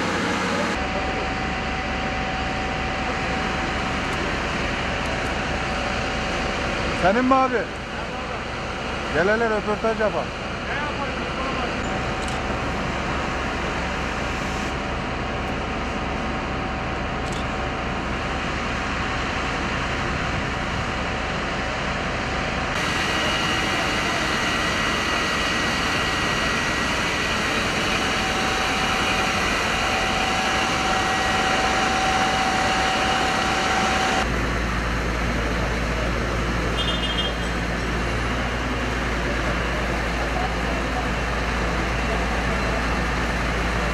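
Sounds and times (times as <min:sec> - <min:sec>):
vehicle engines running: 0:00.0 - 0:43.9.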